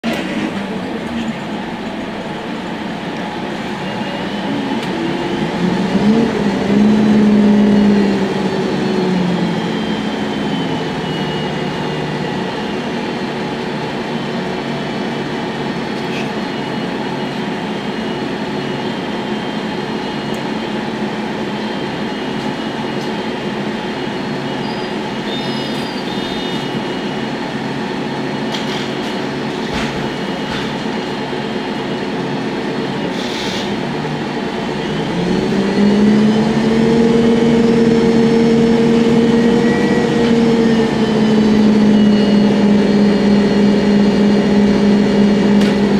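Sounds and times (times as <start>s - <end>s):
pitched drone: 0.0s - 23.1s, 33.8s - 45.9s
bus engine hum: 0.0s - 45.9s.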